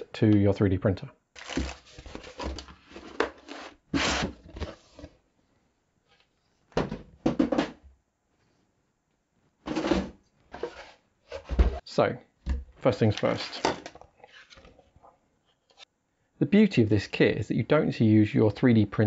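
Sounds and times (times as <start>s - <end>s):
cardboard box rubbing and knocking: 1.4s - 5.1s.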